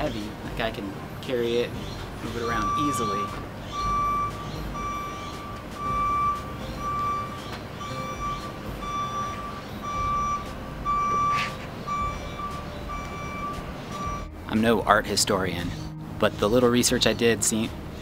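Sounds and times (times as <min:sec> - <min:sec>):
reversing alarm beeping: 0:02.3 - 0:14.4.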